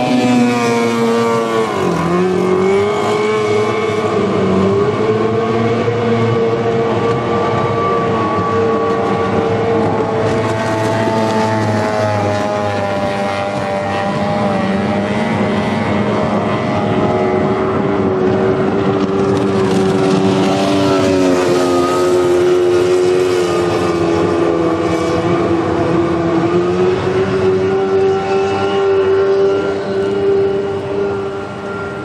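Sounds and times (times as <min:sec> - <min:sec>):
outboard motors whining: 0:00.0 - 0:32.0.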